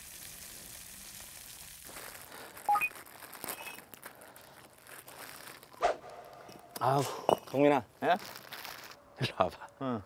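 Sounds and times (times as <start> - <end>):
food sizzling: 0.0 - 3.8.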